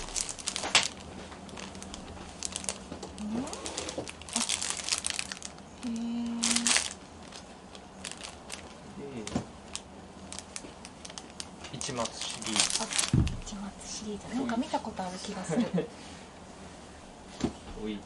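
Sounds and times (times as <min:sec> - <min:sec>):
fabric rustling and crinkling: 0:00.0 - 0:05.6, 0:06.4 - 0:13.5.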